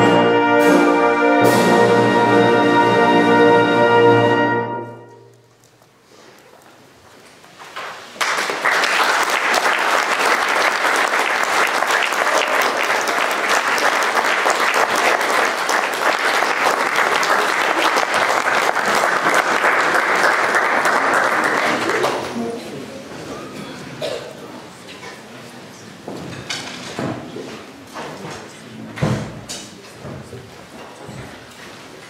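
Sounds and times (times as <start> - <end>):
audience applause: 8.1 - 22.6.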